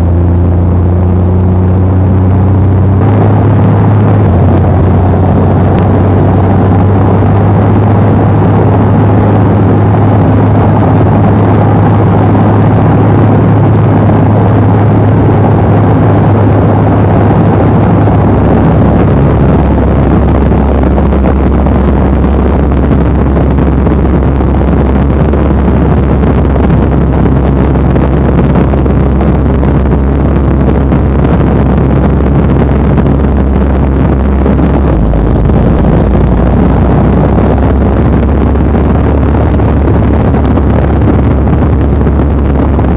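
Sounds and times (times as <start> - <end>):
aircraft cockpit rushing air: 0.0 - 42.9
low engine drone: 0.0 - 42.9.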